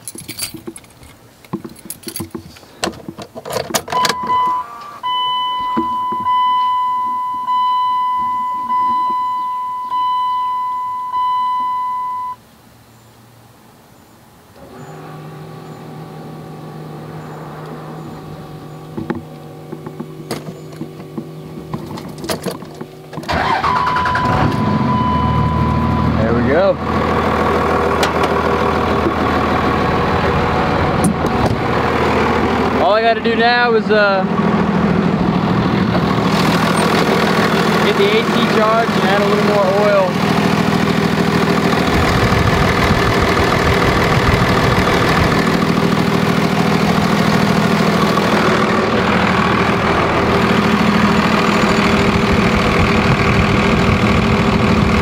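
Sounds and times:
keys clicking in ignition: 0.0s - 2.4s
diesel engine cranking and running: 0.0s - 10.0s, 14.6s - 55.0s
dashboard warning chime: 3.9s - 12.4s, 23.4s - 26.4s.

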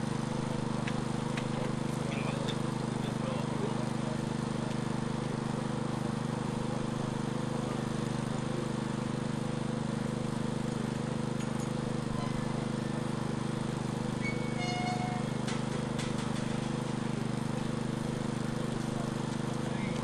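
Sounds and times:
engine humming steadily: 0.0s - 20.0s.

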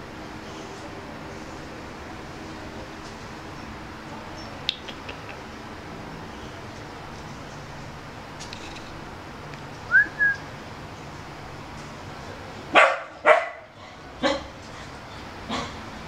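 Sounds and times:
dog barking: 12.7s - 14.5s.

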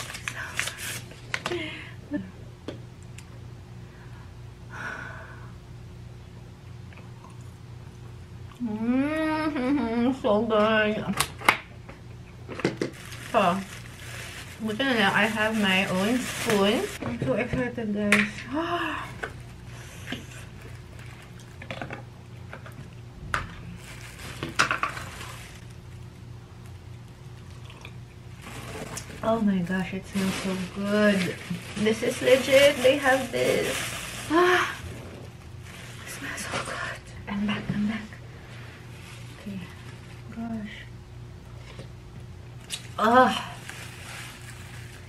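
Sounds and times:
plastic bag crinkling: 0.0s - 1.4s, 12.8s - 17.0s, 19.0s - 22.0s, 23.6s - 26.2s, 27.3s - 36.9s, 38.8s - 40.4s, 42.6s - 45.0s
low room hum: 0.0s - 45.0s
woman humming: 8.6s - 10.4s.

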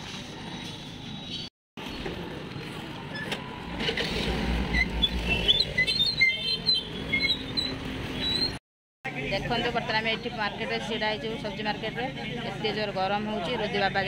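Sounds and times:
traffic hum: 0.1s - 14.0s
crowd noise: 9.1s - 14.0s.

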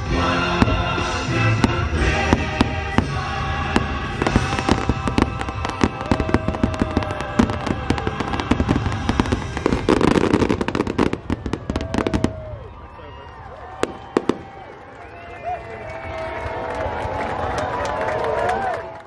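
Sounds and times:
show music: 0.0s - 12.2s
fireworks bangs and crackles: 0.0s - 13.1s, 13.7s - 14.9s.

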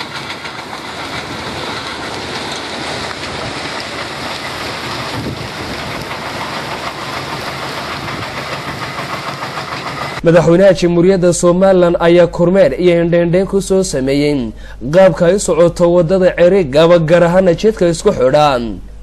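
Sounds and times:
gravel pouring onto piles: 0.0s - 8.0s
stone crusher clatter and rumble: 0.0s - 10.2s.

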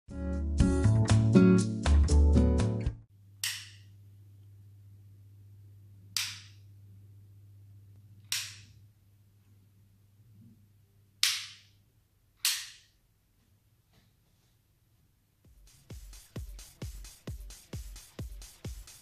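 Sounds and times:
low steady hum: 3.1s - 11.2s.

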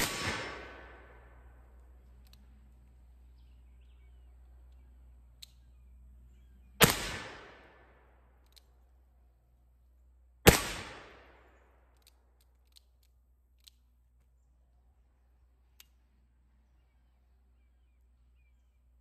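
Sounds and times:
revolver shots: 0.0s - 1.2s
faint clicks: 2.0s - 3.0s, 4.6s - 5.8s, 8.4s - 8.9s, 11.9s - 14.3s, 15.7s - 16.0s.

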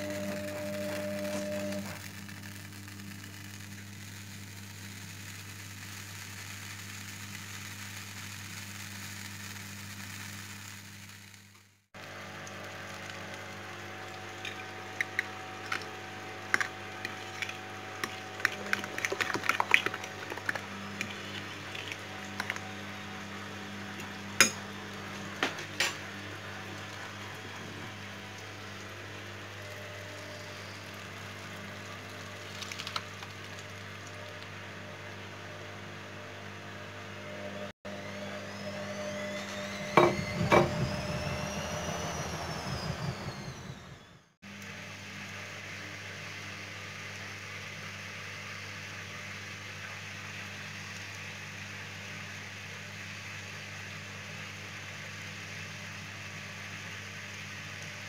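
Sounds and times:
butter hissing in frying pan: 2.0s - 11.5s
fork whisking eggs in bowl: 16.5s - 22.6s.

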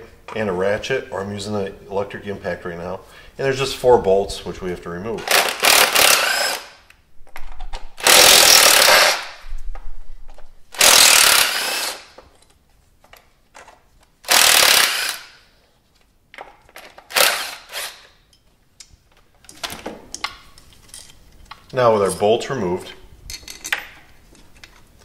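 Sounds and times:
impact wrench hammering: 5.2s - 6.8s, 8.0s - 9.4s, 14.3s - 15.4s.

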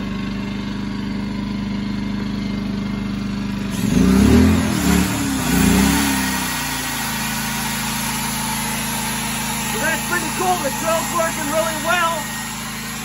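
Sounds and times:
generator running: 0.0s - 13.0s
electric drill running: 3.6s - 13.0s.

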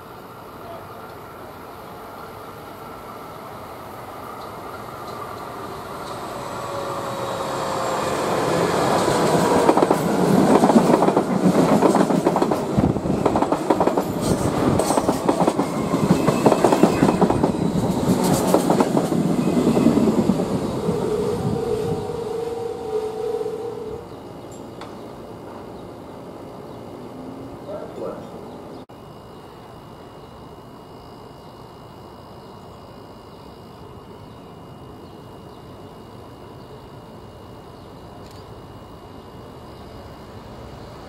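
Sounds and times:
train wheels clacking over rail joints: 8.9s - 19.3s.

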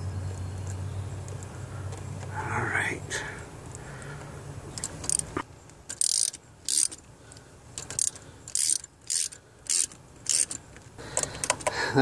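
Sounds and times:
ratchet wrench clicking: 4.8s - 7.0s, 7.8s - 10.6s.

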